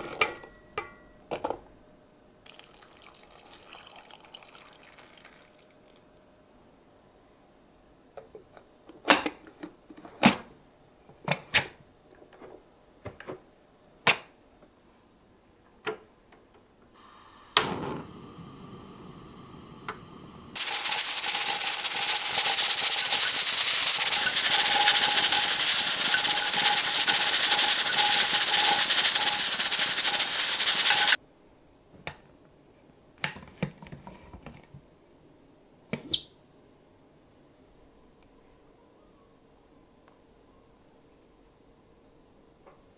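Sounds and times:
steam hissing with whistle: 17.0 - 31.2.

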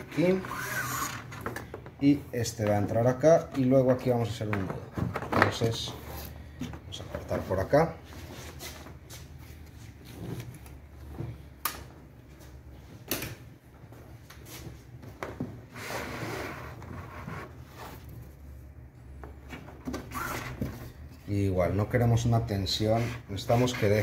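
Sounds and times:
cord rubbing on plastic: 0.1 - 1.4, 15.7 - 18.4.

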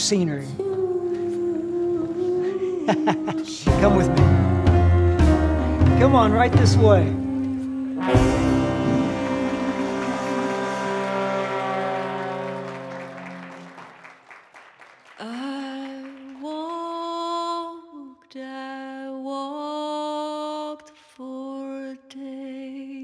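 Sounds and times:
woman singing long notes: 0.6 - 6.0, 7.1 - 13.2
band music: 3.6 - 14.1.

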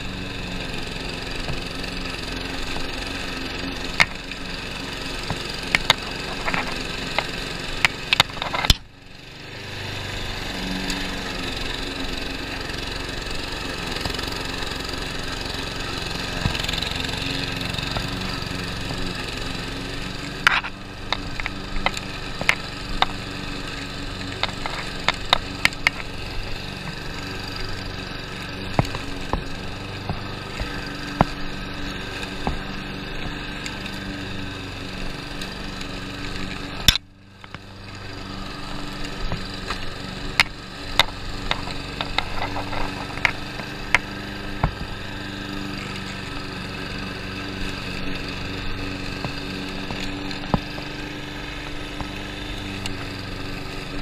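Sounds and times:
lawn mower engine running: 0.0 - 54.0
sharp clicks and knocks: 5.2 - 8.9, 20.3 - 23.2, 24.2 - 26.2, 39.3 - 44.9.

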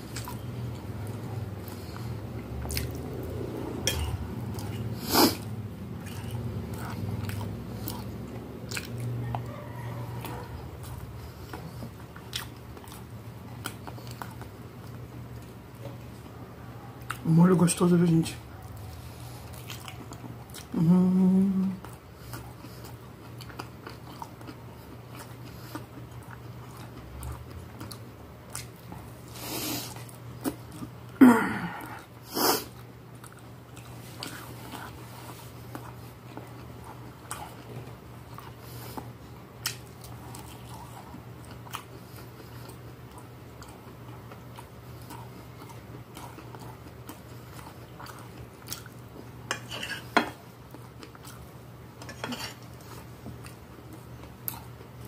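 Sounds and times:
close-up chewing: 0.0 - 55.0
person humming mmm: 20.7 - 21.8, 31.2 - 32.0.

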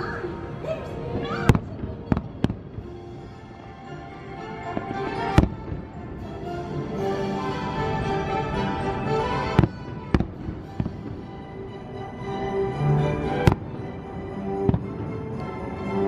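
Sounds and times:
fireworks bangs: 1.4 - 3.8, 4.5 - 6.3, 9.4 - 11.6, 13.4 - 15.1.

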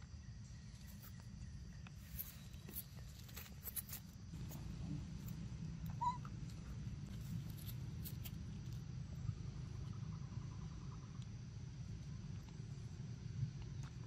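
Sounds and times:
steady low rumble: 0.2 - 14.0
monkey squeak: 5.9 - 6.2.

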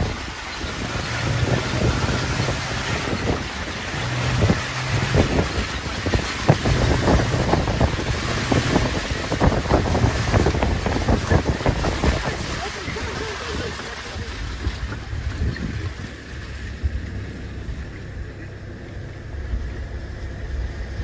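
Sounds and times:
wind buffeting microphone: 0.0 - 21.0
low hum: 14.2 - 21.0.

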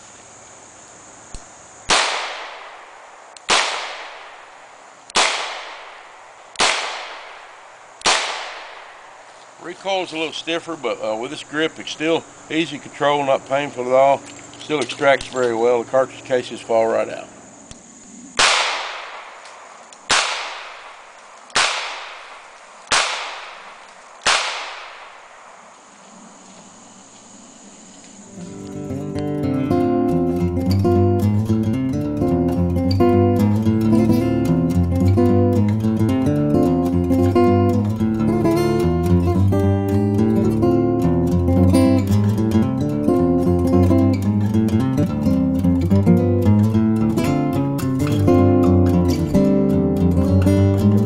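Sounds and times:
revolver shots with echo: 1.9 - 4.5, 5.2 - 9.1
revolver gunshots: 1.9 - 9.2, 18.4 - 25.6.

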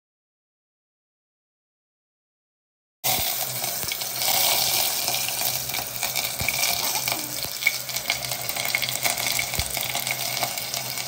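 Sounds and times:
onions sizzling in hot oil: 3.1 - 11.0.

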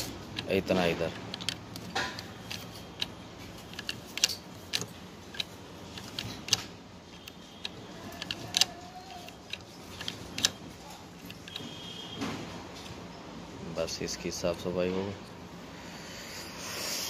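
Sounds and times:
plastic mechanism clicks and taps: 0.4 - 10.6.

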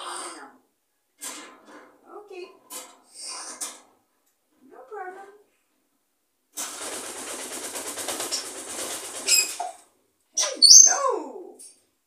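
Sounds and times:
parrot calling: 10.4 - 11.1.

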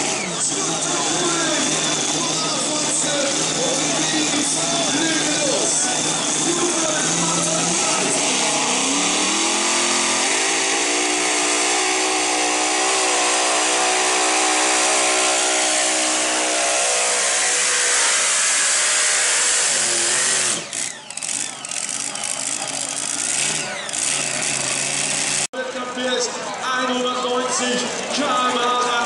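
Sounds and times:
tractor engine high-revving scream: 0.0 - 25.5.

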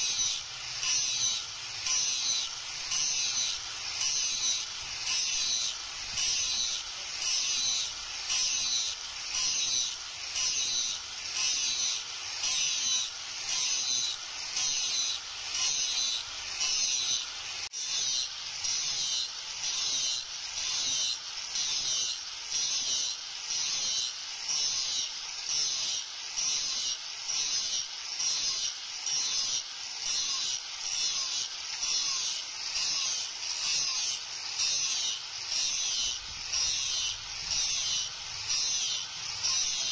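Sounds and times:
angle grinder grinding steel: 0.0 - 39.9.

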